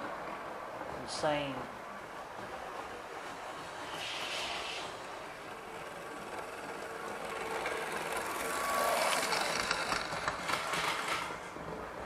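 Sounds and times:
wheels rattling on rails: 0.0 - 12.0
model train motor hum: 3.3 - 11.6.

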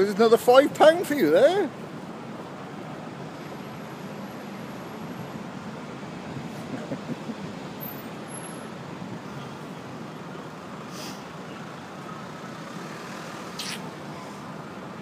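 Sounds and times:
road traffic noise: 0.0 - 15.0
brief hiss: 10.9 - 11.3, 13.4 - 13.9.

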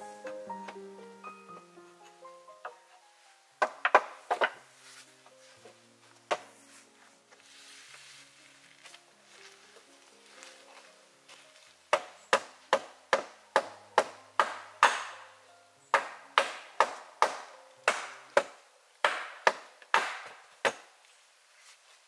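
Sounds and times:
hatchet striking log wall: 3.6 - 4.6, 11.9 - 15.2, 15.9 - 20.9.

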